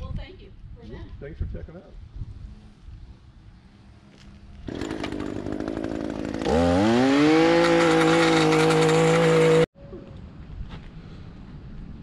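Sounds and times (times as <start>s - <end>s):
two-stroke engine revving: 4.7s - 9.7s.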